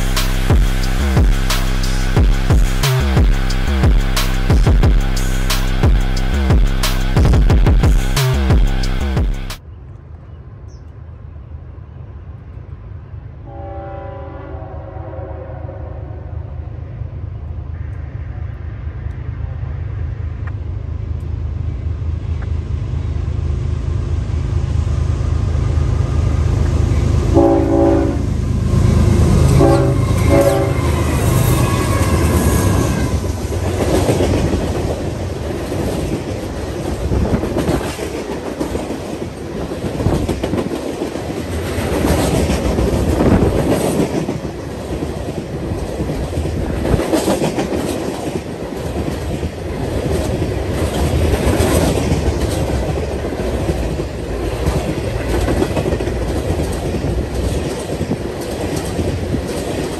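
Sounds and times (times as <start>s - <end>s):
freight train rumbling past: 0.0s - 59.9s
train wheels clacking on rail joints: 29.4s - 59.9s.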